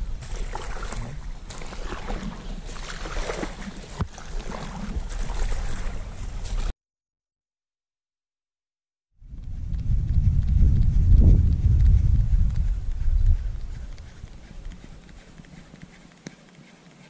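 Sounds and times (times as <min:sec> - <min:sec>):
kayak on water: 0:00.0 - 0:06.7, 0:09.3 - 0:17.0
wind rumbling on microphone: 0:00.0 - 0:06.7, 0:09.2 - 0:16.0.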